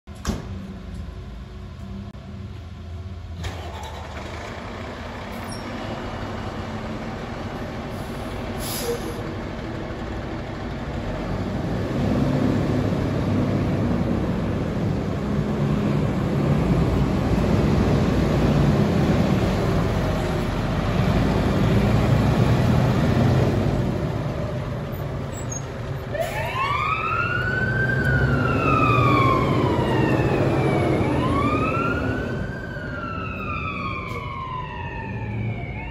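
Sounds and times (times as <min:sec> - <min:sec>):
fire engine diesel engine: 0:00.1 - 0:35.9
siren wailing: 0:26.2 - 0:35.9.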